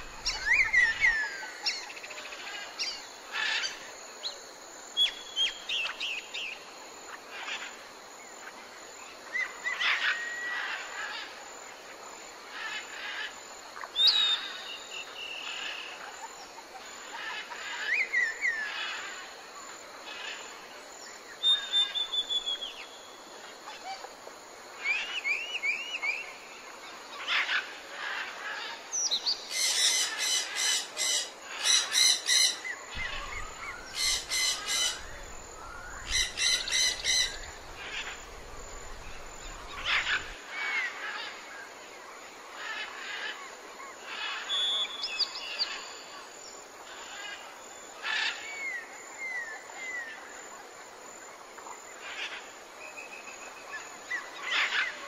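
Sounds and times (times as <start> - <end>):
birds calling and chirping: 0.0 - 3.9, 24.8 - 41.4, 53.0 - 55.0.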